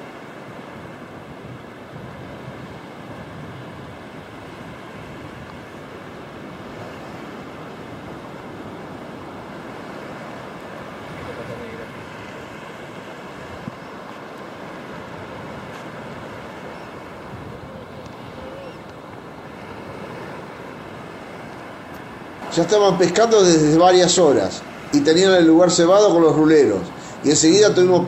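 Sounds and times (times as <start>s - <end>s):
waves breaking on beach: 0.0s - 28.0s
wind buffeting microphone: 0.0s - 28.0s.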